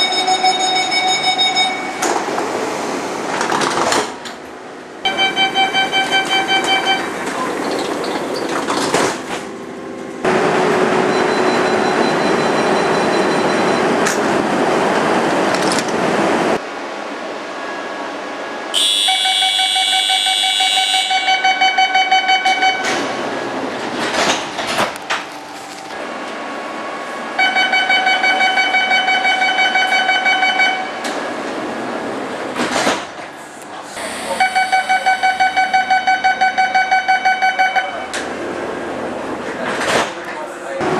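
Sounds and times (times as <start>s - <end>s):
electronic warning beeps: 0.0s - 2.0s, 5.1s - 7.2s, 11.0s - 14.0s
rushing train noise: 0.0s - 40.9s.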